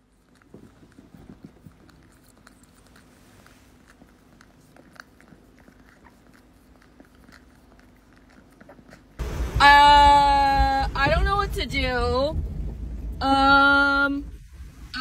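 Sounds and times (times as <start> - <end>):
puppies licking: 0.0 - 9.2.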